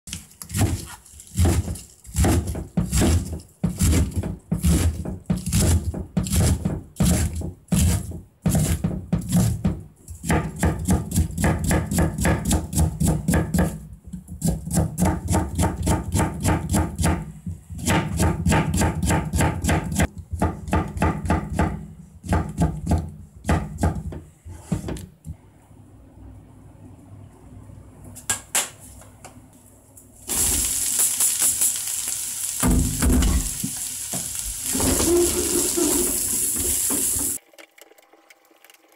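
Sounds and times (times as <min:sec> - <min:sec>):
knife chopping on cutting board: 0:00.5 - 0:13.8, 0:14.4 - 0:24.8.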